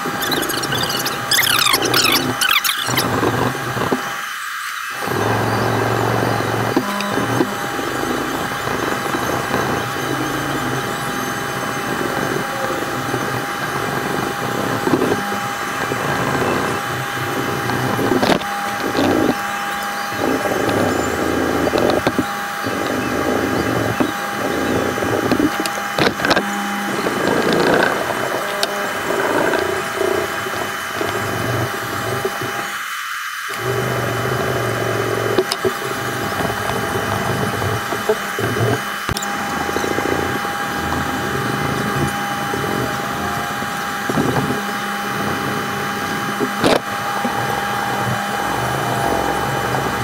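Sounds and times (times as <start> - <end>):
sandpaper rubbing on wood: 0.0 - 4.0
steady background hum: 0.0 - 50.0.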